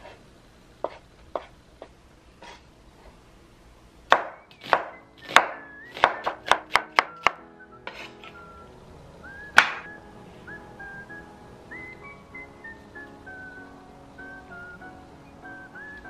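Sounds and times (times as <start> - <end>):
knife chopping on wooden board: 4.1 - 8.1, 9.6 - 9.9.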